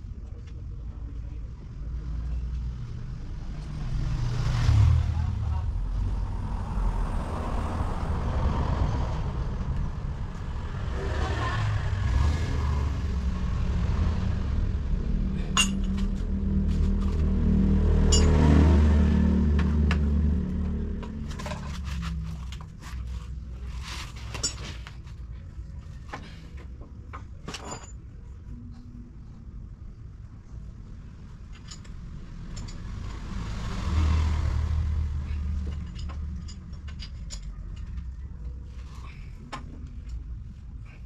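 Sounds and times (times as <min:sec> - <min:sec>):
vehicle engine rumbling: 0:00.0 - 0:41.0
sharp metallic clinks: 0:15.5 - 0:16.0, 0:18.1 - 0:18.4.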